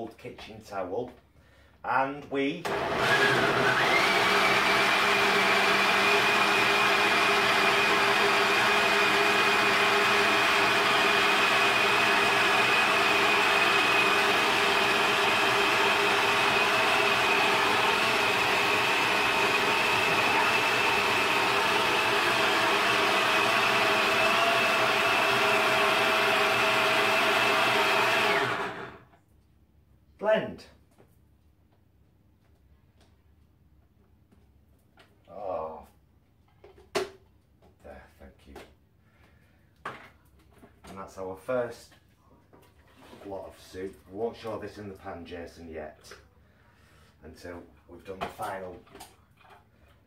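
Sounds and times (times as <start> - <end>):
blender whining: 2.6 - 29.1.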